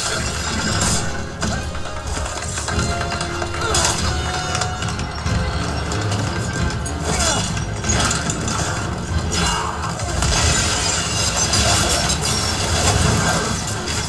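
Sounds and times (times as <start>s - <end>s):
crashing and shattering effects: 0.0s - 14.0s
orchestral music: 0.0s - 14.0s.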